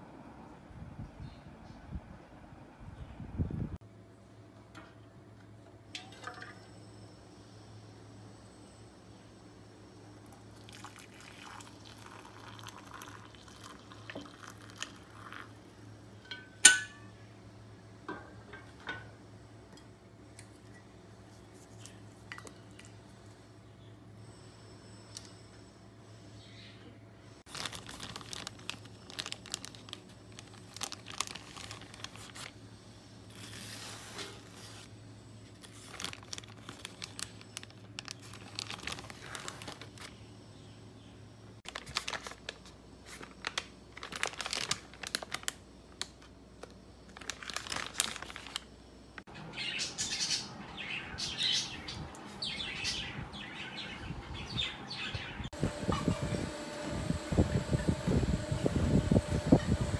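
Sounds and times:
plastic packaging crinkling: 27.5s - 32.6s, 35.6s - 40.2s, 41.6s - 48.7s.

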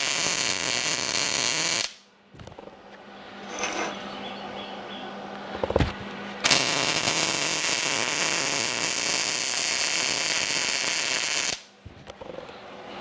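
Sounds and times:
welder arc hissing: 0.0s - 2.0s, 6.4s - 11.7s.

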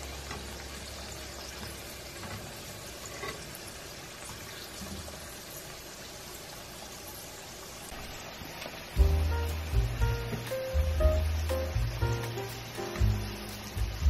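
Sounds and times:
food deep-frying in oil: 0.0s - 14.0s.

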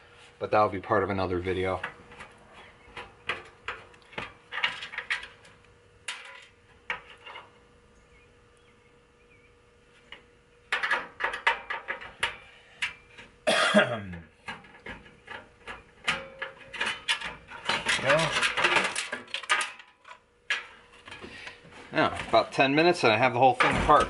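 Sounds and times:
metal case clicking and rattling: 14.5s - 20.7s.

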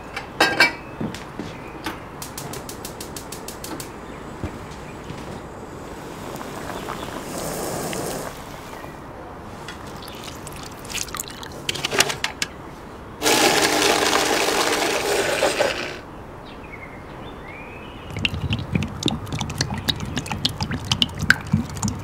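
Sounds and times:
quiet liquid sounds: 9.7s - 11.8s, 18.1s - 22.0s
blender running: 13.2s - 16.0s.

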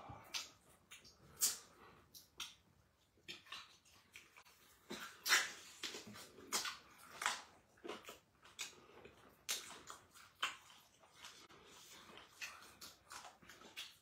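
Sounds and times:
people chewing: 0.0s - 14.0s
lip smacks: 0.2s - 14.0s.

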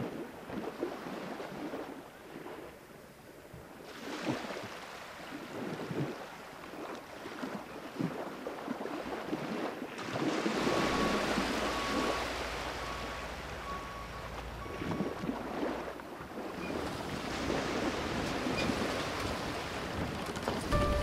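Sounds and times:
waves: 0.0s - 21.0s
wind: 0.0s - 21.0s
faint tone: 10.7s - 15.4s, 20.7s - 21.0s
low rumble: 20.7s - 21.0s.

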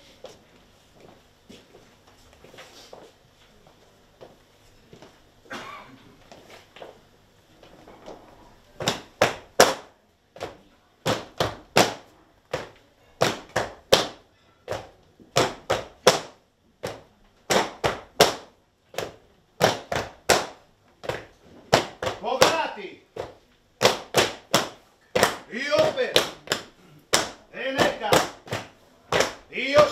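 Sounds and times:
shoes stamping on tiled floor: 6.2s - 7.0s, 7.6s - 29.9s.

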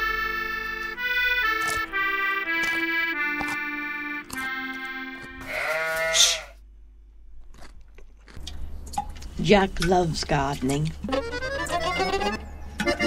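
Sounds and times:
accordion melody: 0.0s - 6.0s, 10.9s - 13.0s
loud wavering cry: 5.4s - 6.6s.

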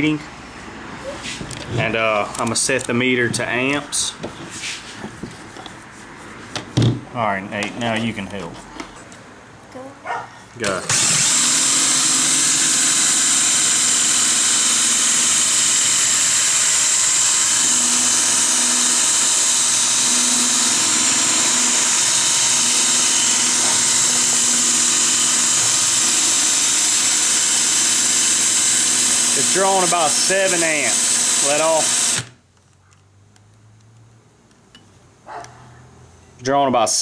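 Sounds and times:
power drill whine: 10.7s - 32.4s
spinning motor hum: 10.9s - 29.6s.

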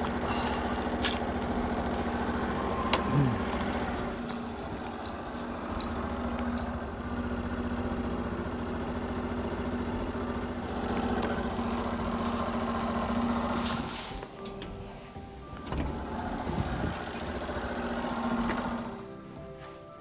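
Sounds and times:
motorbike engine running: 0.0s - 14.3s, 15.8s - 19.2s.

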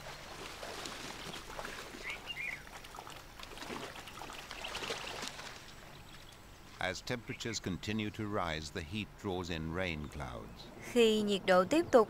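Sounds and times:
small splashes: 0.0s - 6.4s
water trickling and sloshing: 0.0s - 7.0s.

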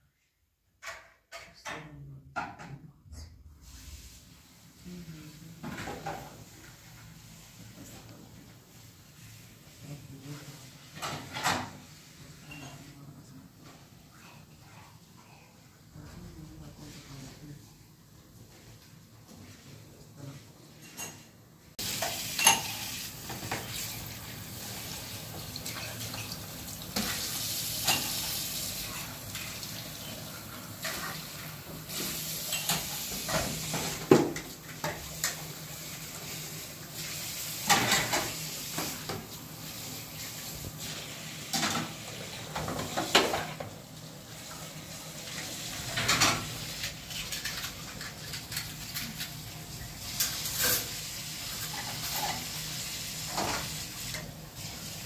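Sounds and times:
plates and glasses clattering: 20.8s - 23.8s, 32.4s - 35.4s, 37.6s - 39.0s.

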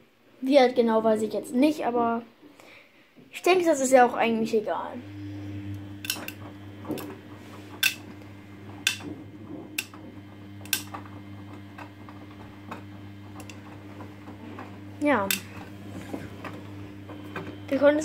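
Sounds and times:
motor hum: 4.7s - 18.0s
washing machine drum turning: 5.2s - 18.0s.

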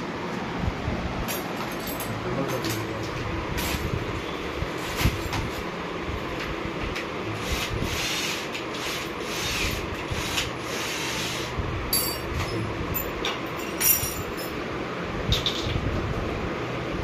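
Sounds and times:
tool rubbing and scraping: 7.3s - 11.6s.

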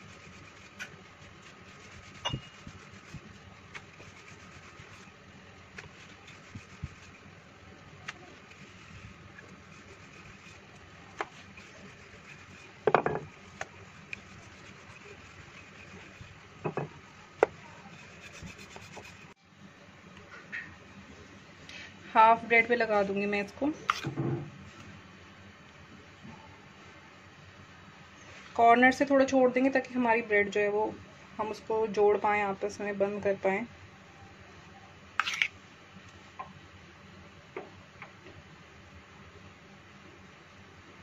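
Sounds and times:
rolling pin rubbing on dough: 0.0s - 19.4s.

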